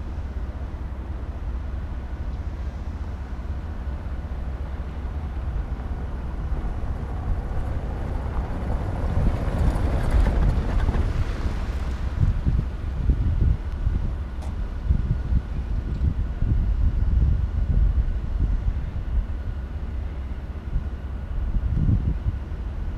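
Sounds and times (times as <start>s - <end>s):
steady low rumble: 0.0s - 22.9s
passing vehicle: 2.3s - 15.8s.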